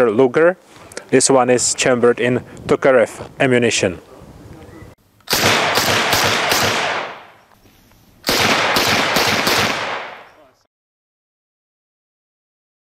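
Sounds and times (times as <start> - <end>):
submachine gun bursts: 5.3 - 7.2, 8.2 - 10.0
gunfire echo: 5.3 - 7.4, 8.2 - 10.3.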